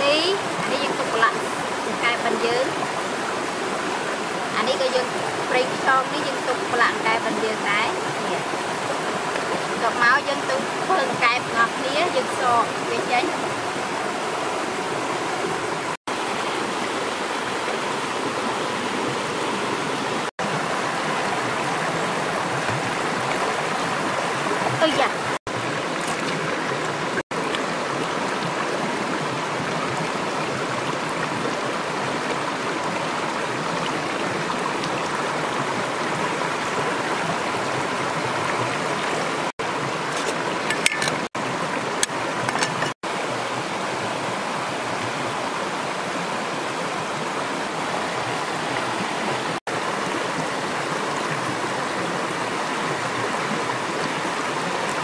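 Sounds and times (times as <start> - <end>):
stream flowing: 0.0 - 55.0.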